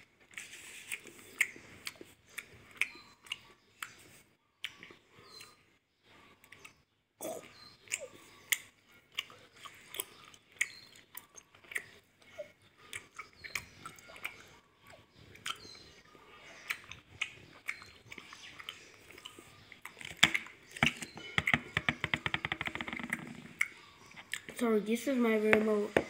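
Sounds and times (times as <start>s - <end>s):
chewing gummy candy: 0.0s - 5.6s, 6.2s - 21.4s
wet mouth clicks and smacks: 15.4s - 15.6s.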